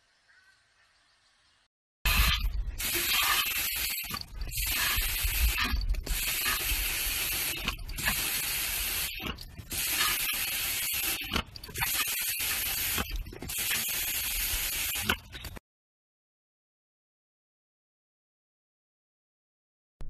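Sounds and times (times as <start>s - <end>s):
spray hiss bursts: 2.1s - 15.3s.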